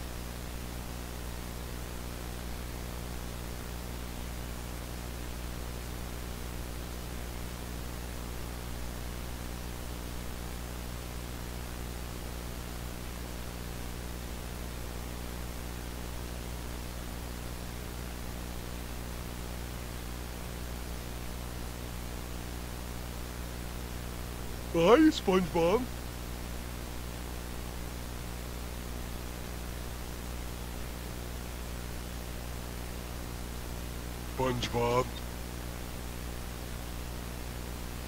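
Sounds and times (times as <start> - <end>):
low electrical hum: 0.0 - 38.0.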